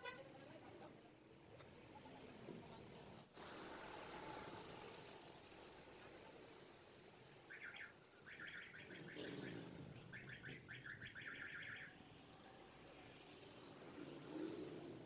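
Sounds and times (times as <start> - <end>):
bird chirping: 7.5 - 11.9.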